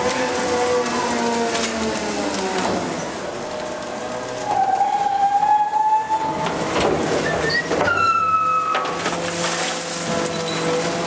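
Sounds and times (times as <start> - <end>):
garbage truck packer clatter: 0.0 - 4.8, 6.2 - 11.0
mechanical squeal: 4.4 - 6.4, 7.2 - 9.0, 10.2 - 10.8.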